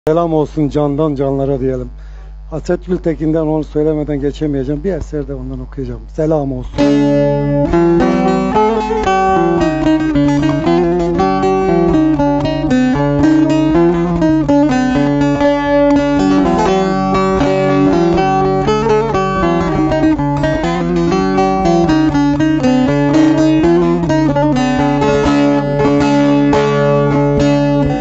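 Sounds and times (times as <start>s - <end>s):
plucked long-necked lute: 6.8s - 28.0s.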